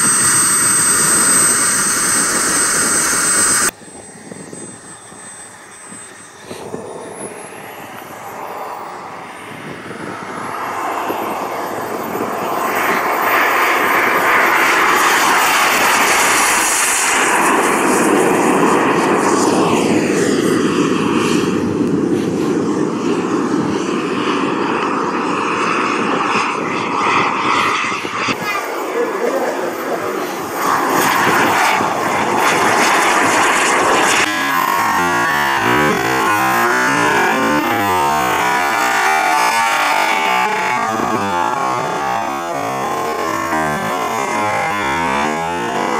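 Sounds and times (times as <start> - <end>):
model jet turbine whine: 0.0 - 45.9.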